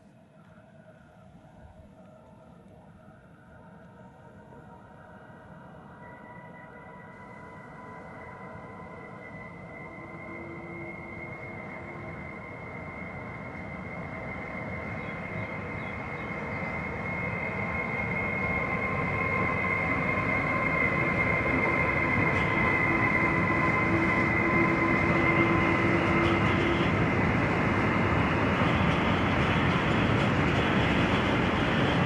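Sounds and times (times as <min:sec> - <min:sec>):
high-pitched whine: 0:05.7 - 0:32.0
freight train rumbling past: 0:08.0 - 0:32.0.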